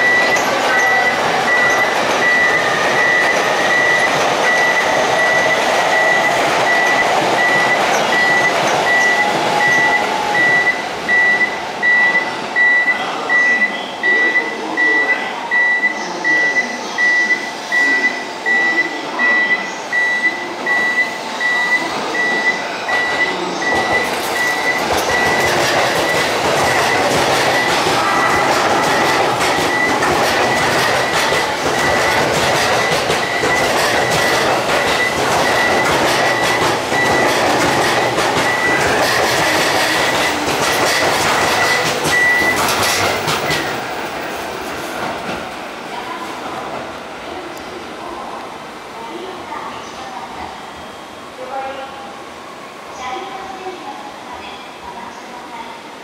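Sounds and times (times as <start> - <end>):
high electronic beeps: 0.0 - 43.7
electric train arriving: 0.0 - 56.0.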